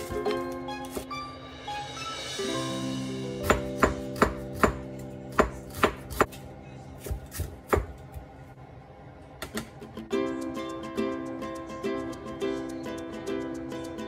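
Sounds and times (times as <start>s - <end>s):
knife chopping on a cutting board: 3.4s - 6.4s, 7.0s - 8.0s.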